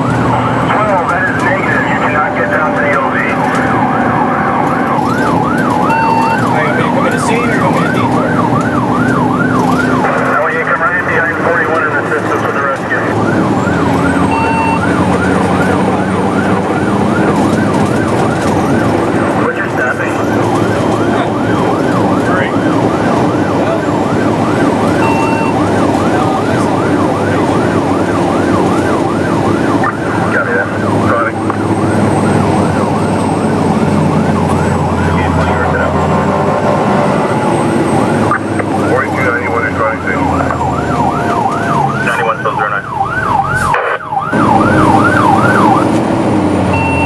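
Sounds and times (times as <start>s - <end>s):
engine drone: 0.0s - 47.0s
road noise: 0.0s - 47.0s
siren yelping: 0.0s - 47.0s
short beep: 5.9s - 6.4s, 14.3s - 14.8s, 25.0s - 25.6s, 46.7s - 47.0s.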